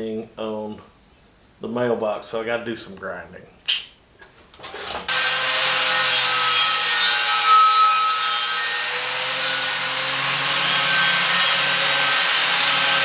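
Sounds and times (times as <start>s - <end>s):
angle grinder grinding steel: 4.6s - 13.0s.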